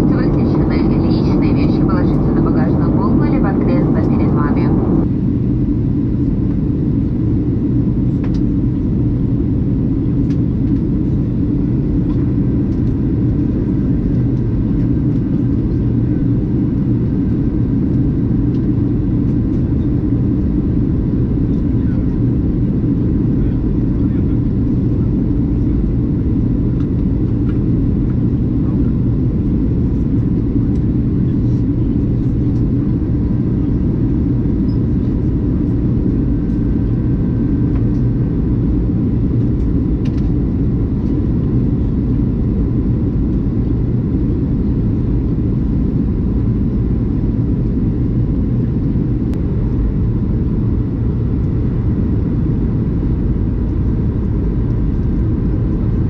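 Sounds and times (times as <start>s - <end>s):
faint steady whine: 0.0s - 6.9s
airplane cabin rumble: 0.0s - 56.0s.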